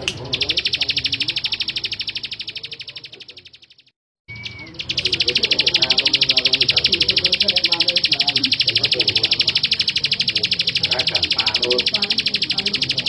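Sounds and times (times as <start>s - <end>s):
bird singing rapid high notes: 0.0s - 13.0s
short whistle: 4.3s - 4.7s.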